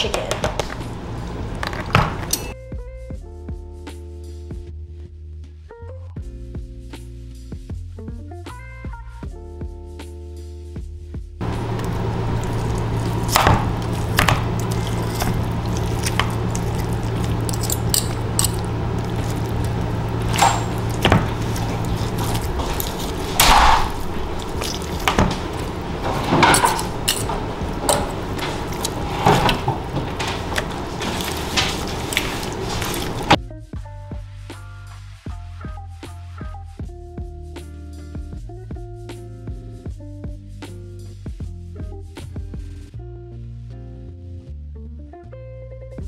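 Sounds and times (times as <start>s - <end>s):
low hum: 11.4s - 33.4s
forks scraping a dish: 13.9s - 33.4s.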